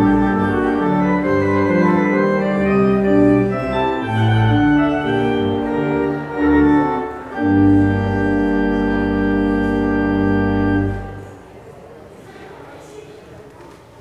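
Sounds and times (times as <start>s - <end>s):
church organ chords: 0.0s - 11.4s.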